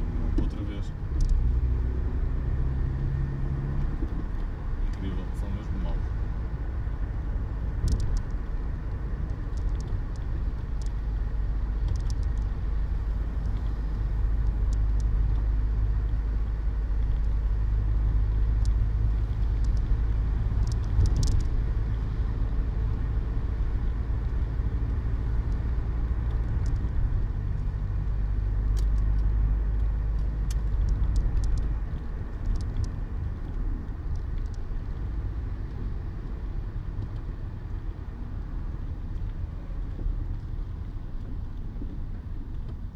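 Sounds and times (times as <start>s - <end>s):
car engine rumble: 0.0s - 42.9s
tyres on wet road: 0.0s - 42.9s
faint ticks: 9.2s - 11.0s, 11.8s - 15.5s, 18.6s - 21.5s, 24.3s - 27.7s, 28.7s - 35.8s.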